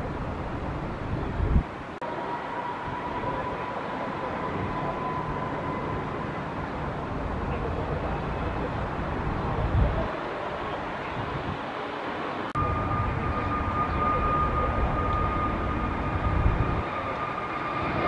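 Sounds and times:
thin whine: 0:12.6 - 0:18.0.

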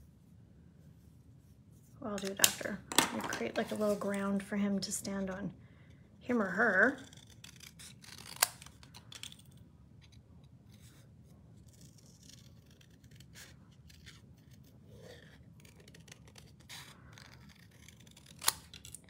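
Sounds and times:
scissors snipping paper: 0:06.4 - 0:09.4, 0:11.6 - 0:19.0.

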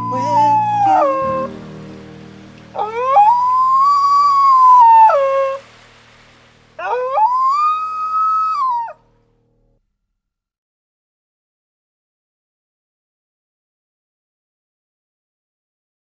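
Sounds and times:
dingo howling: 0:00.0 - 0:01.7, 0:02.5 - 0:05.8, 0:06.8 - 0:09.0.

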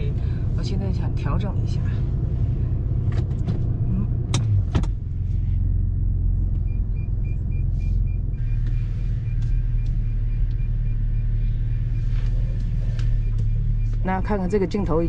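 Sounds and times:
car engine running low: 0:00.0 - 0:15.0
reversing beeper chirping: 0:06.7 - 0:15.0.

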